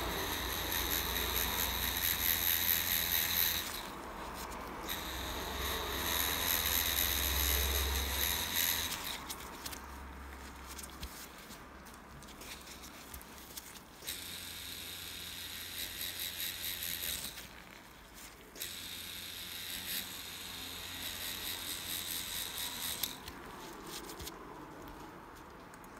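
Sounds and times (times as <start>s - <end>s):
tattoo machine buzzing: 0.0s - 4.0s, 4.8s - 9.4s, 14.0s - 17.8s, 18.6s - 23.3s.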